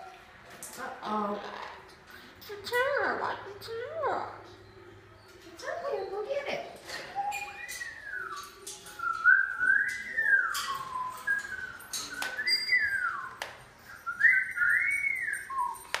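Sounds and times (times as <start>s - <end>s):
person whistling a tune: 14.0s - 15.9s.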